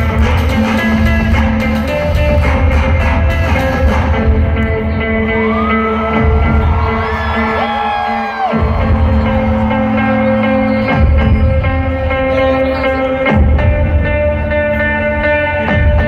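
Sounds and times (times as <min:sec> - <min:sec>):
live rock band playing: 0:00.0 - 0:16.0
crowd whooping: 0:05.2 - 0:11.4.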